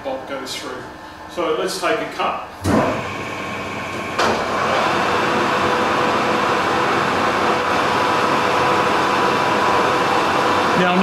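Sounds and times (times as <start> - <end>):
metal lathe motor humming: 2.6 - 11.0.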